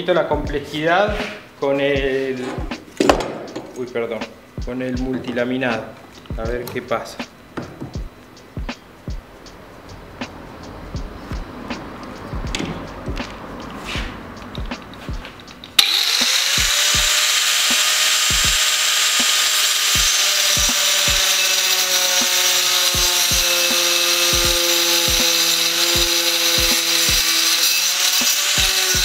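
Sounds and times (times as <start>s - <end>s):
angle grinder cutting plywood: 15.7s - 29.0s.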